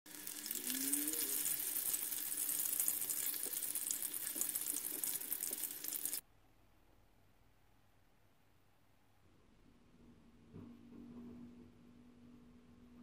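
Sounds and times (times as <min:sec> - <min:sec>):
deep-frying sizzle with crackling: 0:00.1 - 0:06.2.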